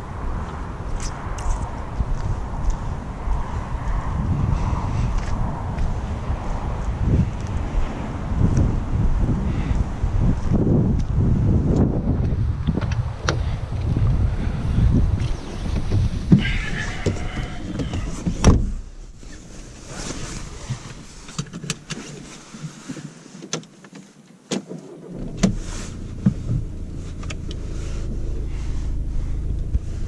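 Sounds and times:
wind buffeting microphone: 0:00.0 - 0:22.3
car door opening: 0:15.2 - 0:22.2, 0:23.5 - 0:27.6
car door shutting thud: 0:15.7 - 0:18.8
diesel engine starting and idling: 0:24.8 - 0:30.0.

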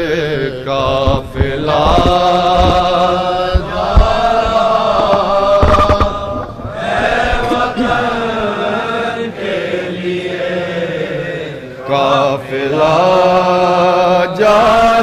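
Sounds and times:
dull chest-beating thumps: 0:00.0 - 0:08.2
person chanting unaccompanied: 0:00.0 - 0:15.0.

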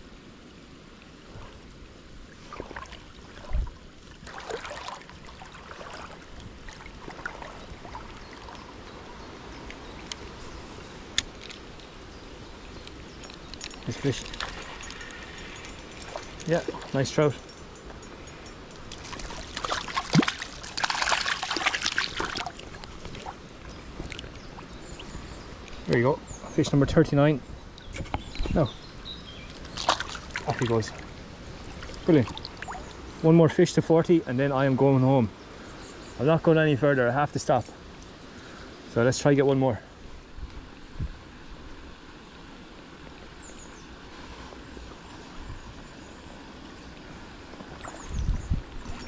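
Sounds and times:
gentle river water: 0:00.0 - 0:49.0
sharp plop in water: 0:18.9 - 0:22.5
fish splashing in water: 0:18.9 - 0:23.4, 0:29.6 - 0:31.1.

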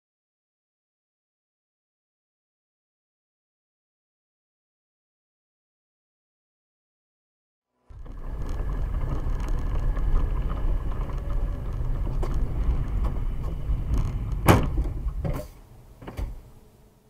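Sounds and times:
car rumbling on wet road: 0:07.9 - 0:15.3.

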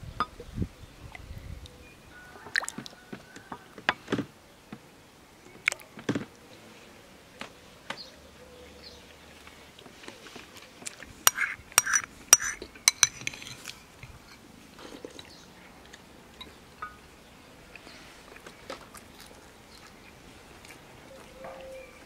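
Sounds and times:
spoons clinking against bowls: 0:11.3 - 0:13.7, 0:16.4 - 0:17.1
crunching raw onion: 0:18.4 - 0:21.8.

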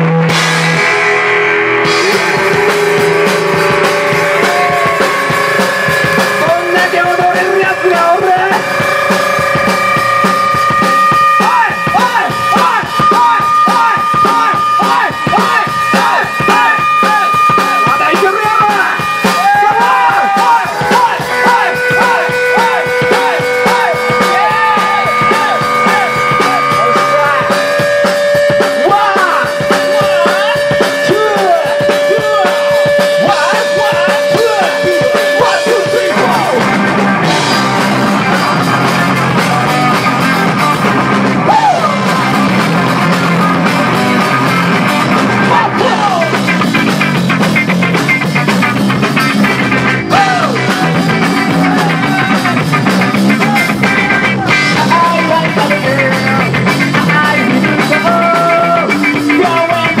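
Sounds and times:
live rock band playing: 0:00.0 - 1:00.0
steady high ringing note: 0:02.0 - 0:11.4
man singing: 0:06.4 - 0:08.9, 0:11.4 - 0:18.8, 0:19.6 - 0:36.8, 0:45.4 - 0:46.4, 0:50.1 - 0:52.6, 0:53.4 - 1:00.0.

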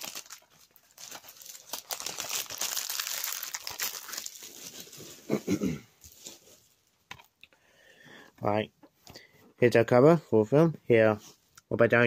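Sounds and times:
plastic shrink-wrap crinkling: 0:00.0 - 0:05.5.

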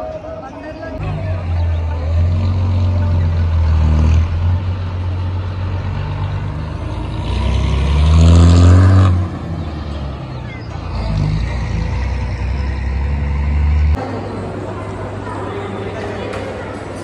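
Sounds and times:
vehicle engine running and revving: 0:01.0 - 0:14.0.

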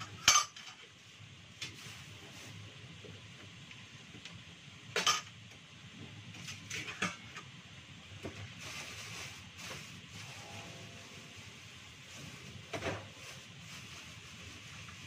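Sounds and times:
dishes clattering on counter: 0:00.0 - 0:00.8, 0:05.0 - 0:05.3
plastic bags rustling: 0:08.4 - 0:15.0.

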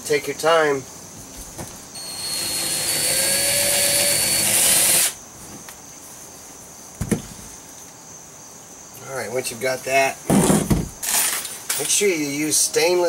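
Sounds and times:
cordless drill boring: 0:02.0 - 0:05.2.

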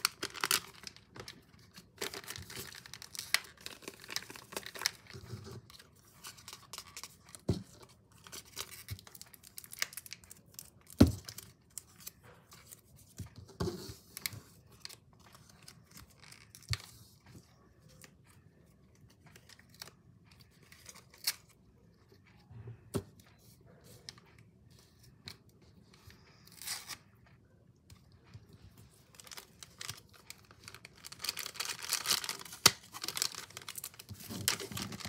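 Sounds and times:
plastic packets crinkling and tearing: 0:00.0 - 0:12.2, 0:29.1 - 0:35.0.

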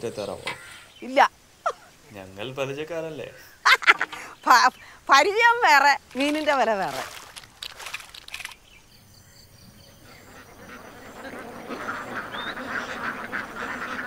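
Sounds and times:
fish splashing in water: 0:06.2 - 0:08.6
ducks quacking: 0:10.0 - 0:14.0.

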